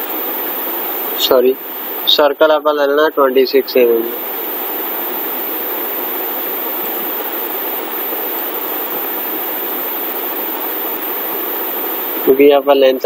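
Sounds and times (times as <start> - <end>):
faint high-pitched whine: 0.0 - 13.0
steady background hiss: 0.0 - 13.0.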